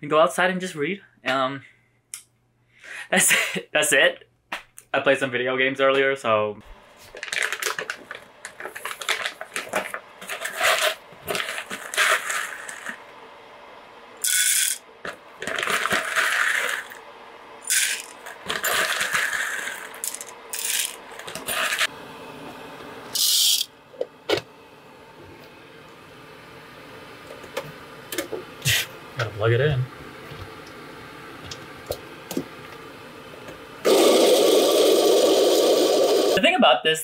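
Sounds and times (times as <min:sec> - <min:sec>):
kitchen items clinking and rattling: 0:17.7 - 0:21.9.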